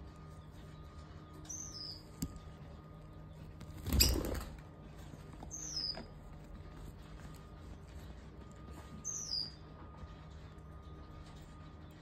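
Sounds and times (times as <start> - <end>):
lovebird chirping: 1.4 - 2.4, 5.4 - 6.1, 9.0 - 9.6.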